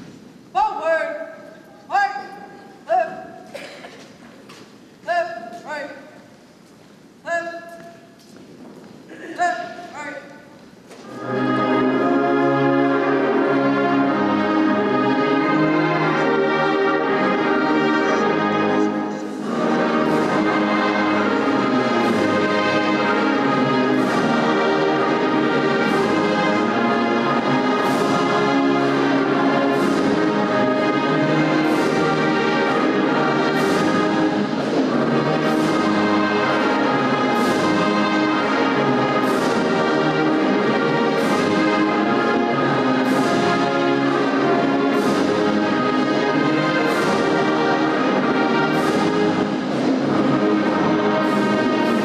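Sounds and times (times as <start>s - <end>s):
brass accompaniment: 11.0s - 52.0s
choir singing: 11.0s - 52.0s.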